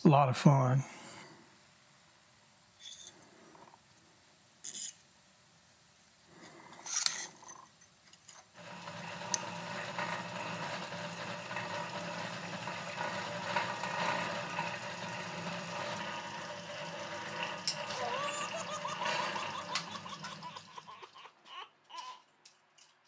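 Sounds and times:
cut-off wheel grinding metal: 8.6s - 21.0s.

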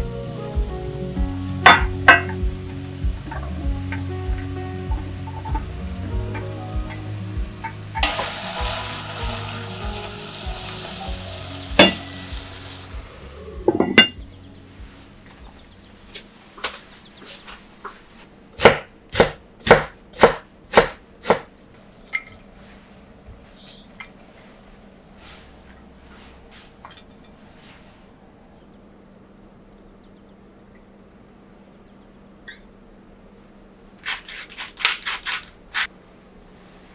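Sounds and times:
vegetables sizzling in a pot: 1.4s - 15.4s
knife chopping on wooden board: 18.6s - 21.5s.

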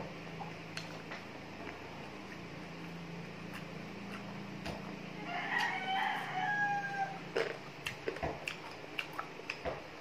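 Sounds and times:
crispy food chewing: 0.4s - 6.4s, 7.3s - 9.8s
rooster crowing: 5.1s - 7.3s.

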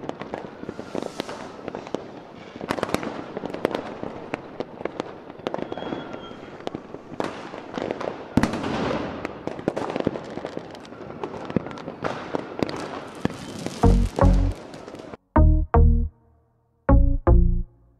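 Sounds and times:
fireworks bangs and crackles: 0.0s - 15.2s
loud music with deep bass: 13.8s - 14.5s, 15.4s - 16.1s.

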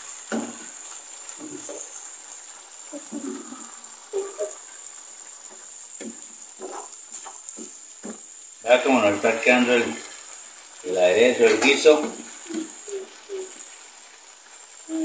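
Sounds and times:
vegetables sizzling in a frying pan: 0.0s - 15.0s
wooden spoon scraping a pan: 5.5s - 8.2s.

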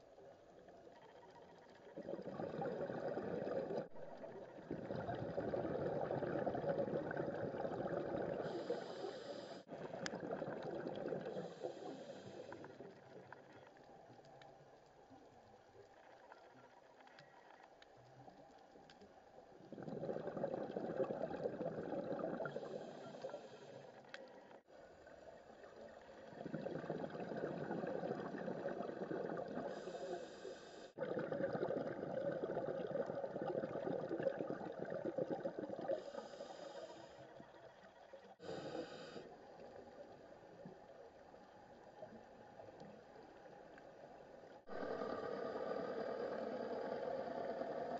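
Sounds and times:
underwater exhaled bubbles gurgling: 0.0s - 14.8s, 18.2s - 47.9s
regulator inhalation hiss: 8.4s - 9.7s, 11.3s - 12.6s, 29.7s - 31.0s, 35.9s - 37.2s, 38.4s - 39.4s.

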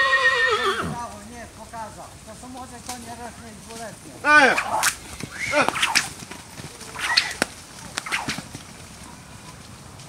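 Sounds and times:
short call: 4.3s - 6.1s
whip cracking: 4.4s - 6.2s, 6.8s - 8.5s.

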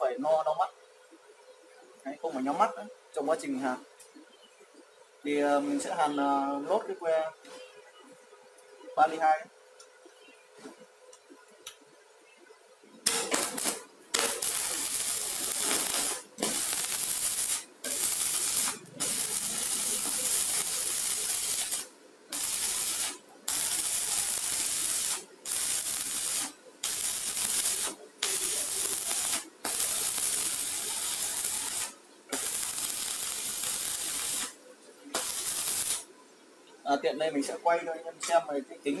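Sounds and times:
welding arc crackling hiss: 13.0s - 36.1s.

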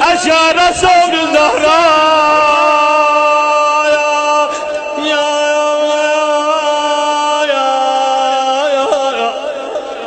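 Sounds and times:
person chanting in long notes: 0.0s - 10.0s.

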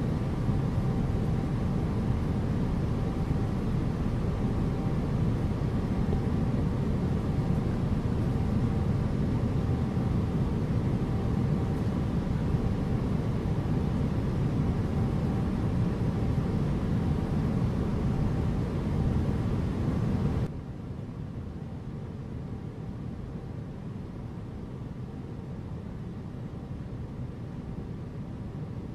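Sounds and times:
airliner cabin rumble: 0.0s - 23.1s.

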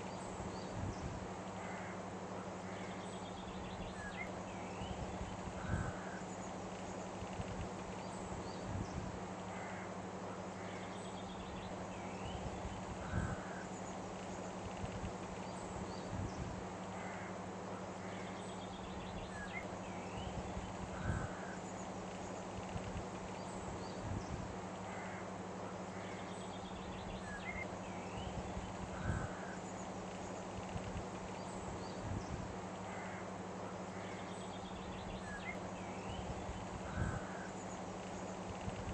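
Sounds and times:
steady low hum: 0.0s - 38.9s
short bird calls: 33.9s - 37.7s.

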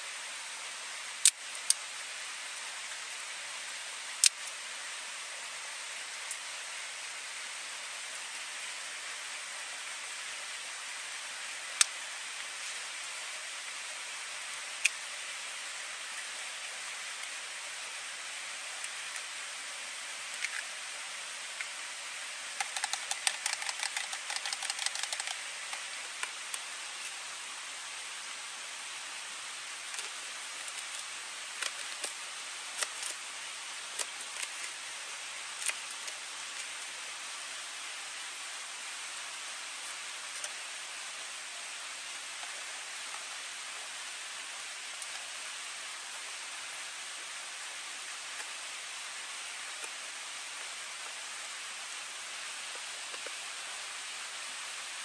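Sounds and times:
sharp clicks: 22.6s - 25.8s
rapid small taps: 22.6s - 26.4s.

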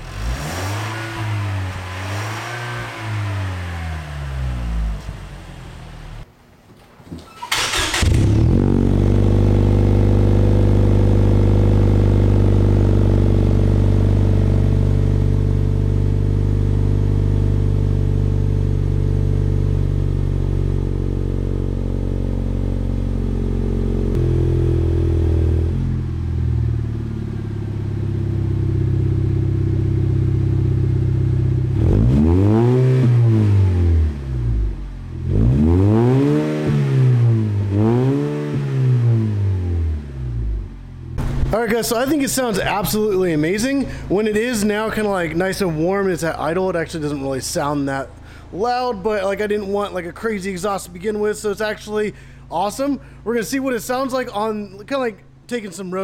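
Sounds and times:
car engine idling and revving: 0.0s - 6.3s, 7.7s - 41.5s.

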